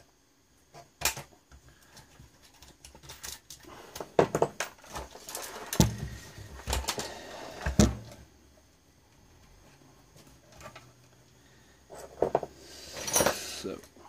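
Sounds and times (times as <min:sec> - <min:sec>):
small parts and tools clicking: 0:00.7 - 0:07.2, 0:10.5 - 0:14.0.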